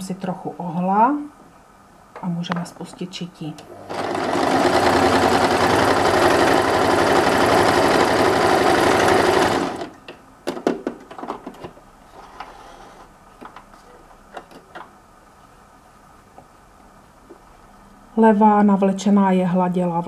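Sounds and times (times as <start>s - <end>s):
electric sewing machine running: 3.7s - 9.9s.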